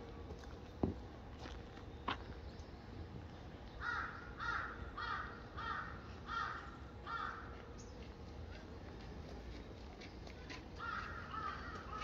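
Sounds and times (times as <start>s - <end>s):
bird harsh calls: 3.7s - 8.0s, 10.8s - 12.0s.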